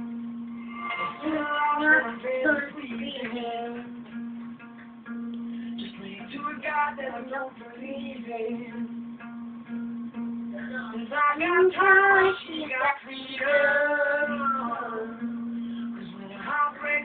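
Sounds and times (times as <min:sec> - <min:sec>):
guitar music: 0:00.0 - 0:17.0
boy singing: 0:01.0 - 0:04.1, 0:05.8 - 0:08.9, 0:10.6 - 0:15.2, 0:16.0 - 0:17.0.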